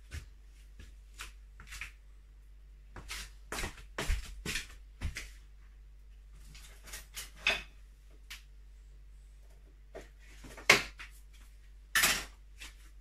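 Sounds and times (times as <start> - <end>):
kitchen things knocking and clattering: 11.9 - 12.4.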